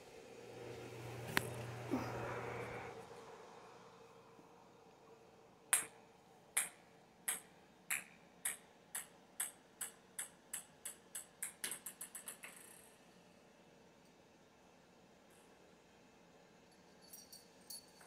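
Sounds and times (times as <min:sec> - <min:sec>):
ping-pong ball bouncing on floor: 0:05.7 - 0:06.0, 0:06.6 - 0:12.7.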